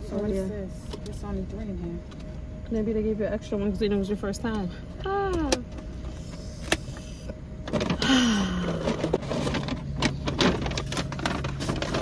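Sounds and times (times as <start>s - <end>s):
paper bag rustling: 7.7s - 12.0s.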